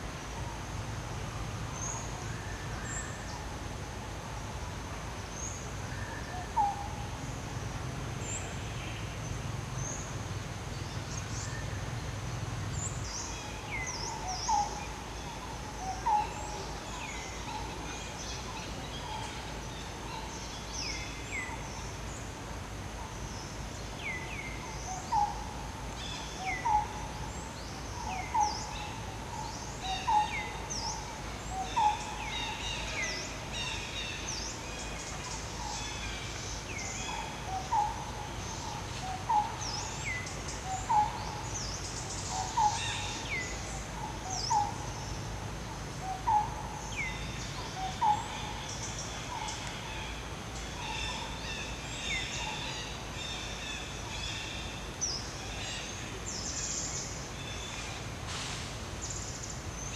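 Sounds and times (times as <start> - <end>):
outdoor background: 0.0 - 59.9.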